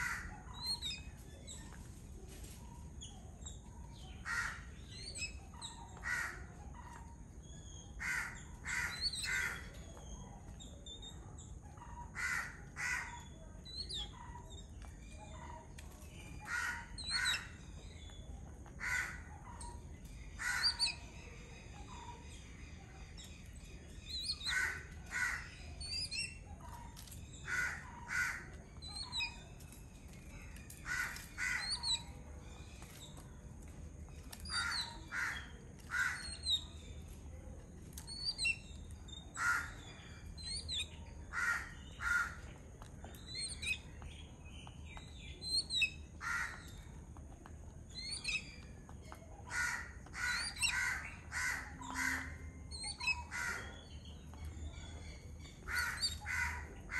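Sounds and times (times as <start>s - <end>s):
birds chattering calls: 0.0s - 56.9s
thin high bird chirps: 19.0s - 47.0s.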